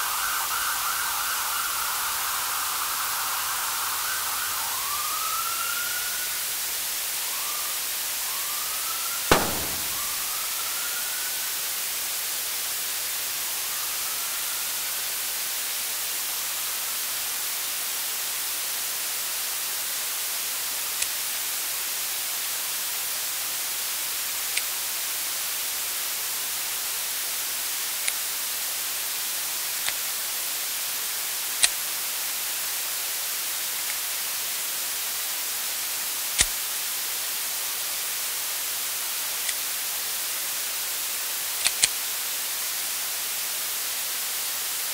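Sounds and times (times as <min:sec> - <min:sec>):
faint rising whistle: 0:00.0 - 0:06.6, 0:07.2 - 0:11.5
sharp static crackles: 0:09.4 - 0:10.5.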